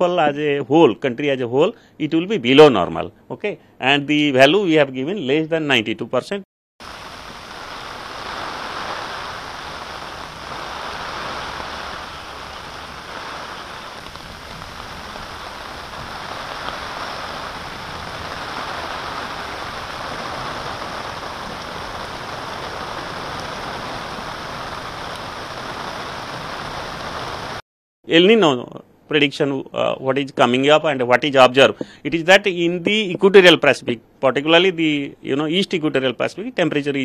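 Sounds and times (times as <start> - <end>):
heavy rain on road: 6.8 - 27.6.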